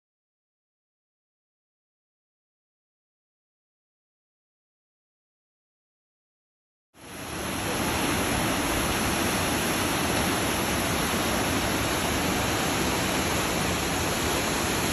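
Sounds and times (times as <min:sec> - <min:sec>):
waterfall rushing over rocks: 0:07.0 - 0:14.9.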